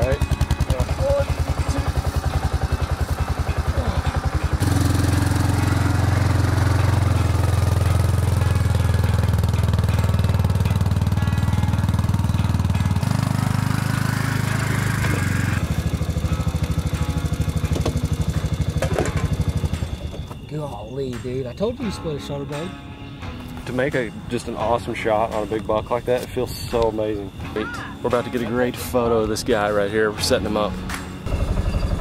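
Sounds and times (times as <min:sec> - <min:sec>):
atv engine running: 0:00.0 - 0:20.5, 0:30.8 - 0:32.0.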